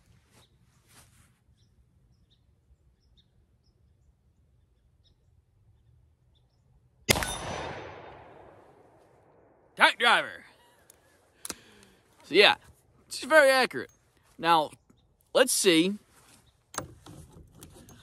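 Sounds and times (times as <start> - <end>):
faint bird chirps: 1.5 - 6.8
loud pistol shot with echo: 7.1 - 9.0.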